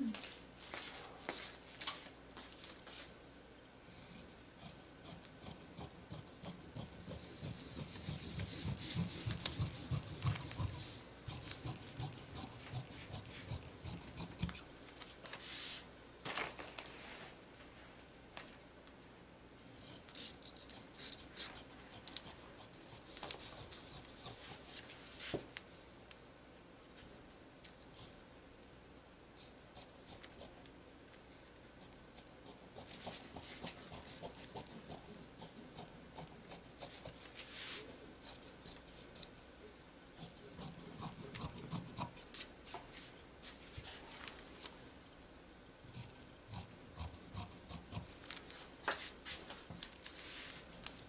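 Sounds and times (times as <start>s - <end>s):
shears snipping fabric: 5.2s - 14.6s.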